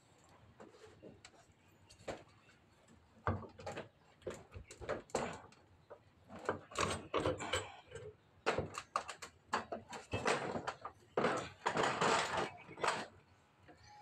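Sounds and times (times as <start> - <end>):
metal clicks and knocks: 3.2 - 13.8.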